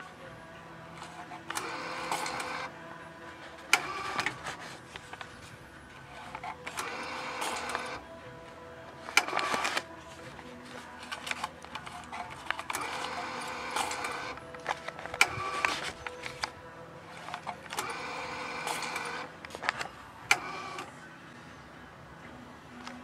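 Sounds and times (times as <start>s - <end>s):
banknote acceptor motor whirring: 1.0s - 2.8s, 3.7s - 5.2s, 6.0s - 8.0s, 9.0s - 9.9s, 11.1s - 20.9s
sharp mechanical clicks: 17.2s - 20.9s.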